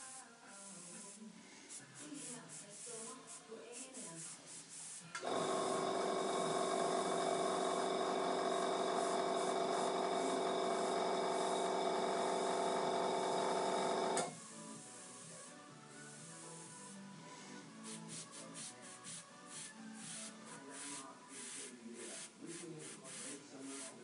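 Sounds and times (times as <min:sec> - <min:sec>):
small air compressor humming: 0:04.9 - 0:17.0, 0:17.8 - 0:24.0.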